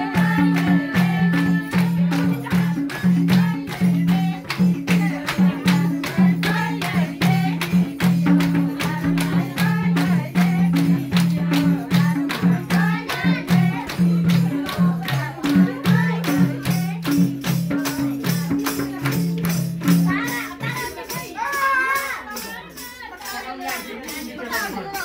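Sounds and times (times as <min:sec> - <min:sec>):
folk singing: 0:00.0 - 0:19.4
sharp steady percussive beat: 0:00.0 - 0:25.0.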